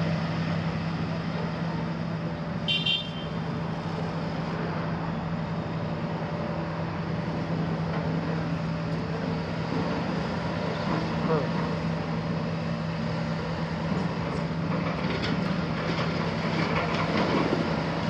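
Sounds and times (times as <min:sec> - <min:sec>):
diesel engine running: 0:00.0 - 0:18.0
high-pitched toot: 0:02.7 - 0:03.4.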